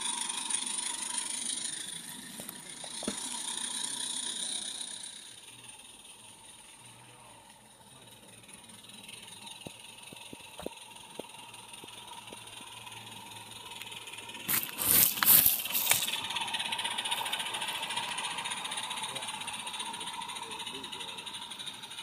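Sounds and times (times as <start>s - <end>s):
small steam locomotive clatter: 0.0s - 22.0s
wagons rattling past: 4.8s - 22.0s.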